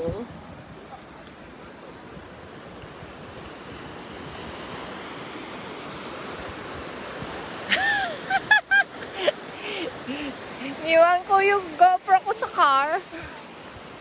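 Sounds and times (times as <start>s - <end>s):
wind buffeting microphone: 0.0s - 8.6s
ocean surf on beach: 0.0s - 14.0s.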